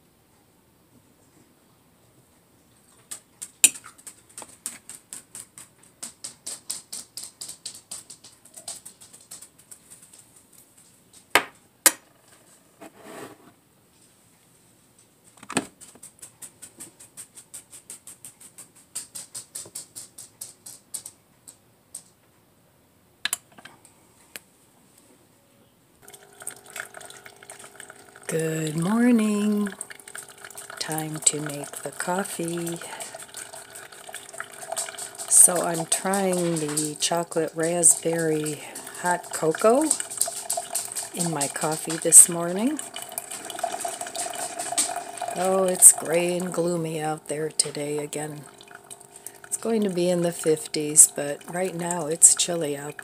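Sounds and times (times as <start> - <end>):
coffee maker humming: 26.0 - 53.0.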